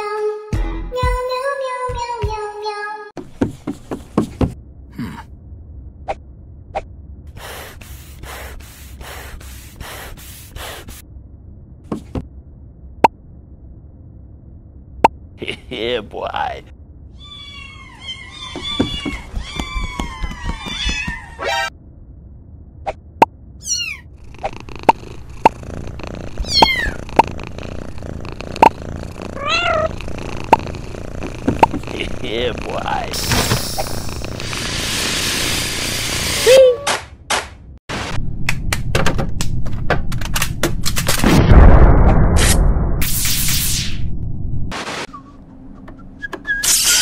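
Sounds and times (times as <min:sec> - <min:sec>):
kitten mewing: 0:23.6 - 0:33.1
sharp pops: 0:30.2 - 0:32.1.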